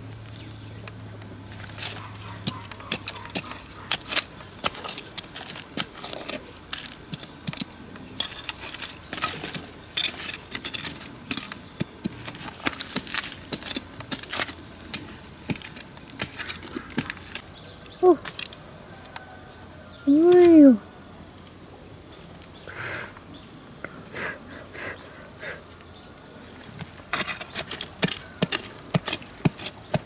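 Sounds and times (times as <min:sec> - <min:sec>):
machete chopping stony soil: 0:01.7 - 0:17.4, 0:26.8 - 0:30.0
stones rattling: 0:01.7 - 0:17.4.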